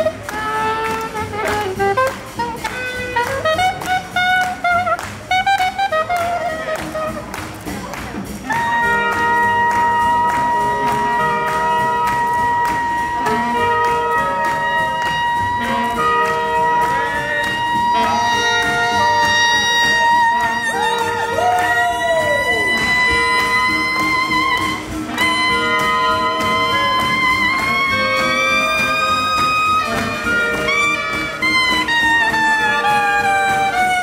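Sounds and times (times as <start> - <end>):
swing jazz horn section: 0.0 - 34.0
horn holding long high note: 8.5 - 34.0.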